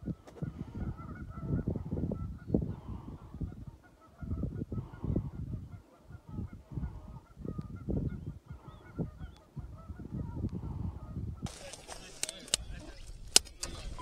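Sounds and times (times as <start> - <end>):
geese honking: 0.3 - 14.0.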